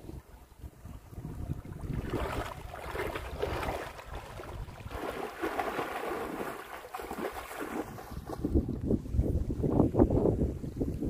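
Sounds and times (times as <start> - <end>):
person wading through shallow water: 0.0 - 9.2
wind rumble on microphone: 0.0 - 11.0
water splashing: 1.2 - 8.7.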